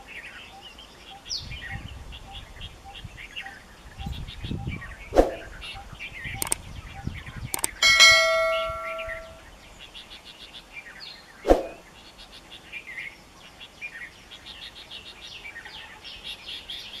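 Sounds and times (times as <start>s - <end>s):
small birds chirping: 0.0s - 17.0s
mouse click: 6.4s - 6.6s, 7.5s - 7.8s
bright bell ding: 7.7s - 9.4s.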